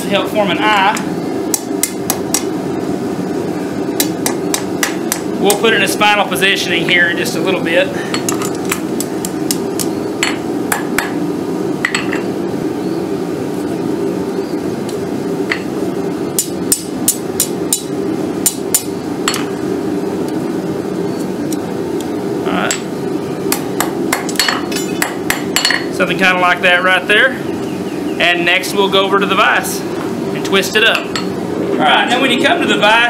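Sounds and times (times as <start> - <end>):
steady low hum: 0.0 - 33.0
hammer striking steel on anvil: 23.5 - 25.9.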